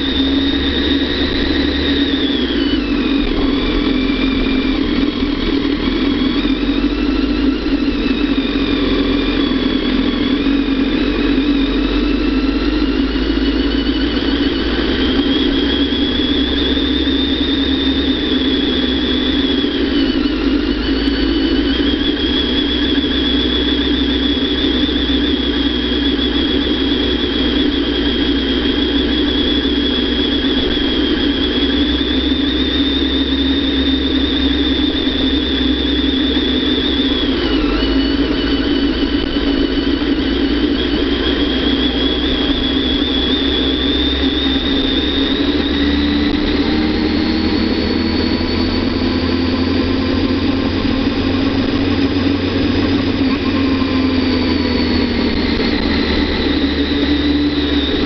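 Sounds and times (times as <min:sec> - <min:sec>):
motorcycle engine running: 0:00.0 - 0:58.0
thin high whine: 0:00.0 - 0:58.0.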